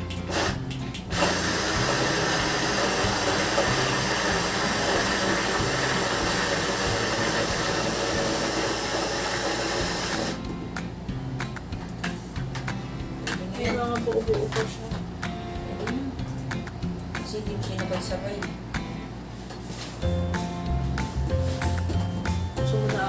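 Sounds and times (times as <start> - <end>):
blender motor whirring: 0.3 - 10.4.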